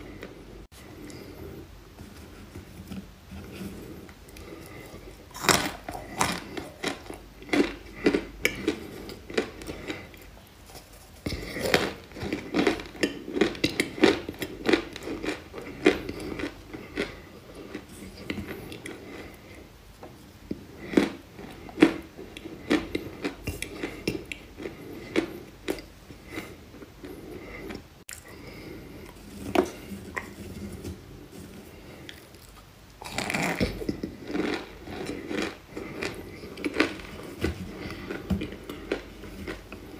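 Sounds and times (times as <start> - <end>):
chewing crunchy clay: 4.3 - 19.5, 31.8 - 39.9.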